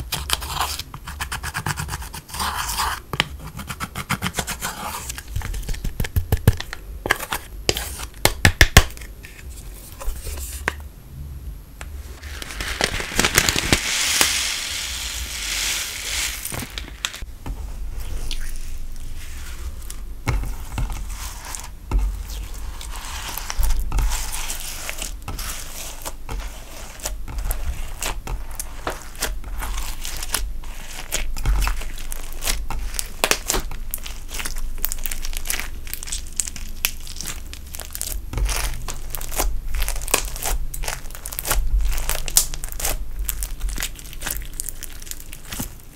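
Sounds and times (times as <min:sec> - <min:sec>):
hands squishing crunchy slime: 0:12.1 - 0:17.3, 0:18.0 - 0:45.9.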